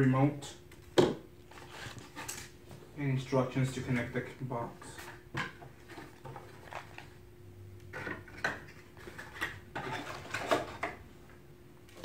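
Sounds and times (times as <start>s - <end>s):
cardboard packaging rustling: 1.4s - 2.7s, 5.8s - 7.2s.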